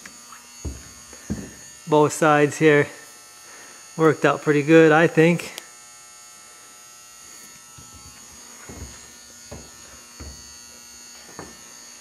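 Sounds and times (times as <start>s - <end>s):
steady electrical buzz: 0.0s - 12.0s.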